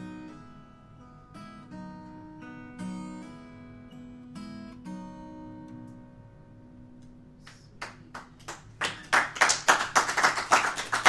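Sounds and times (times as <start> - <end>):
acoustic guitar chord: 0.0 - 7.6
audience applause: 7.8 - 11.0.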